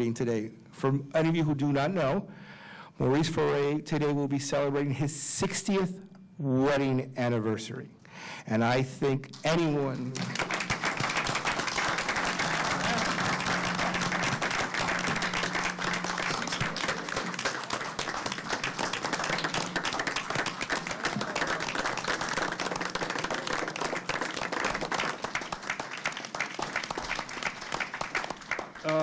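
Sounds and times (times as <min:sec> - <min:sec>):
crowd applauding: 0:10.0 - 0:29.0.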